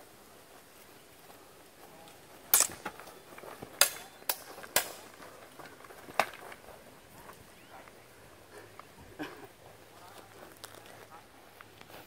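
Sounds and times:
steel swords clashing: 0:02.5 - 0:02.8.

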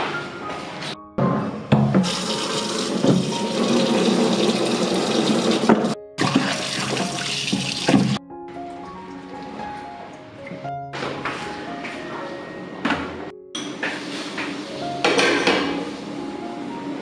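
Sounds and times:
tap running into a basin: 0:02.0 - 0:08.2
splashing while scrubbing: 0:02.1 - 0:08.2.

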